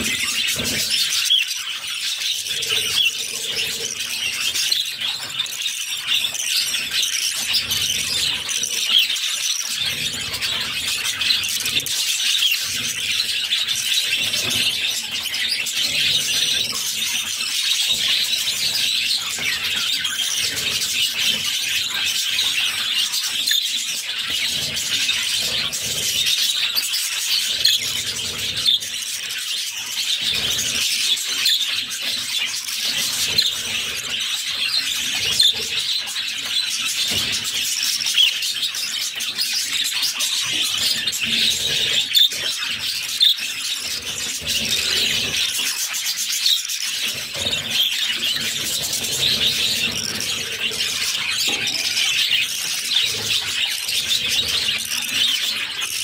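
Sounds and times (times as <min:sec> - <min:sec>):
budgerigar chicks begging calls: 0:00.0 - 0:05.6, 0:38.1 - 0:55.8.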